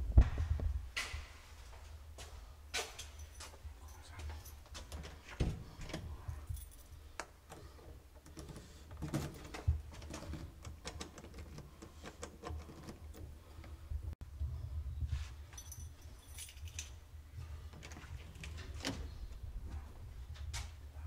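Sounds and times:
keys jangling: 0:02.8 - 0:05.2, 0:06.1 - 0:07.0, 0:15.5 - 0:17.0.

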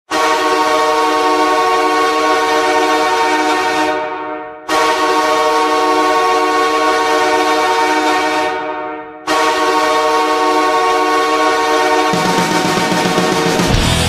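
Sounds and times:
arena goal horn blasts: 0:00.1 - 0:13.5.

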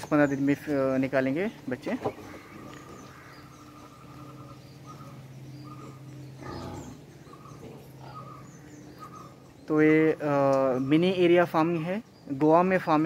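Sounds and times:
faint bird chirps: 0:00.0 - 0:12.6
steady low hum: 0:00.0 - 0:12.6
pig grunt: 0:06.4 - 0:07.0.

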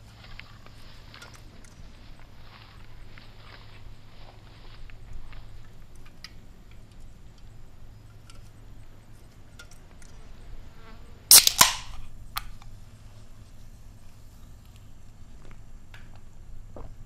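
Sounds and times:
soda can opening with fizz: 0:11.3 - 0:12.0.

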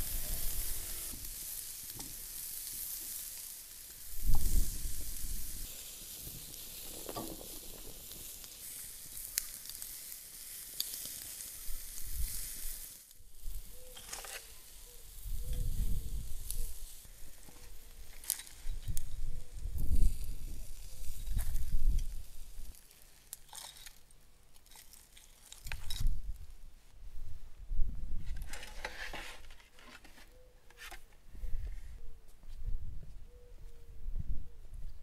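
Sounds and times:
ribs sizzling on a grill: 0:00.0 - 0:24.0.

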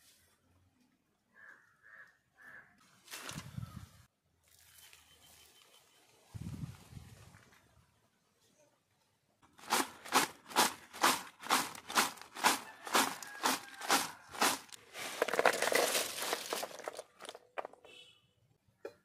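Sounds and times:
chips tossed in bowl rustling: 0:09.6 - 0:17.4
chips rattling onto leaf: 0:09.6 - 0:17.8.

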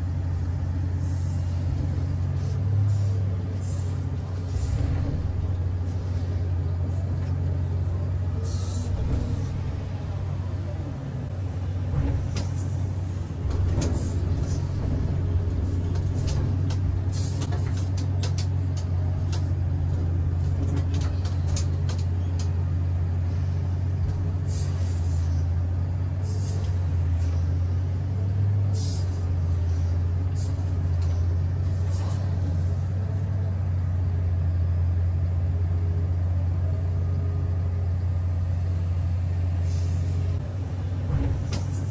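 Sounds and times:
excavator engine drone: 0:00.0 - 0:41.9
sharp clicks and knocks: 0:15.8 - 0:22.6.

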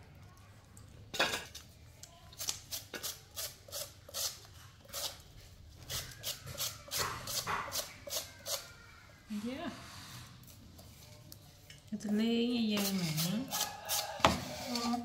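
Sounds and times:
knife scraping vegetable: 0:02.4 - 0:08.8, 0:12.7 - 0:15.0.

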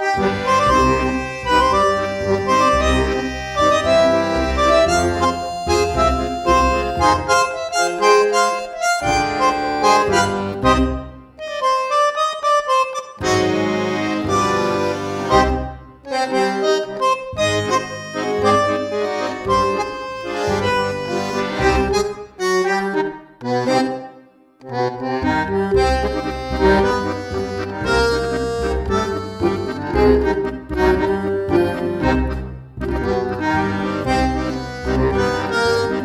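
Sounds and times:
background music with bass: 0:00.2 - 0:07.8.

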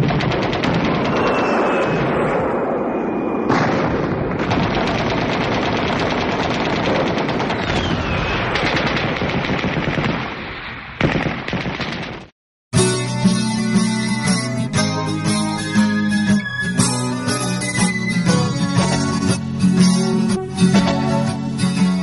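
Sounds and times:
automatic machine-gun fire: 0:00.0 - 0:02.0, 0:03.5 - 0:10.4, 0:11.0 - 0:12.3
thin falling whistle: 0:01.1 - 0:03.5.

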